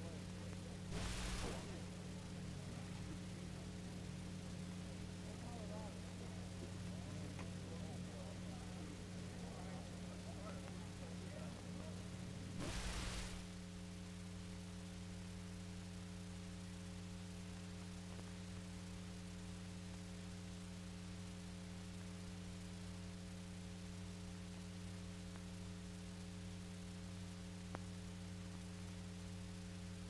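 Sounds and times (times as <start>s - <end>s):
electrical hum: 0.0s - 30.0s
recording hiss: 0.0s - 30.0s
faint click: 25.3s - 25.5s, 27.7s - 27.9s.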